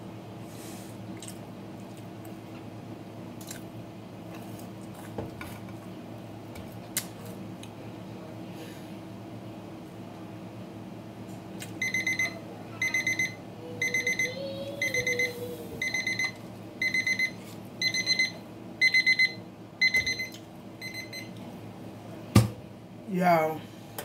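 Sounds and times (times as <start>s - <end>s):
digital timer alarm beeping: 11.8s - 21.3s.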